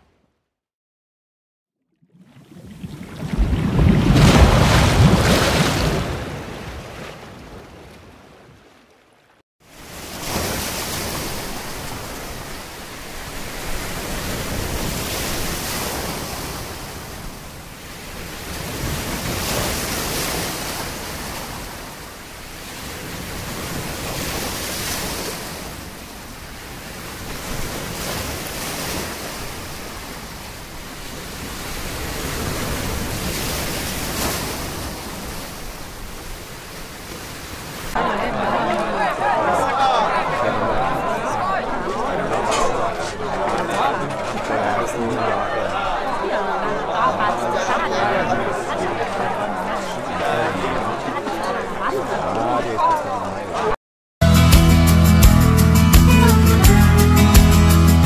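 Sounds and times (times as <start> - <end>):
sea waves rushing: 2.1 - 58.0.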